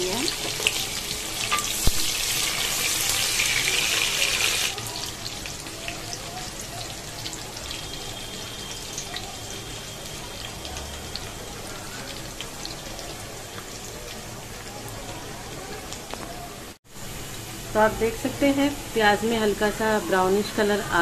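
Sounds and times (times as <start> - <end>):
onions sizzling in hot oil: 0.0 - 21.0.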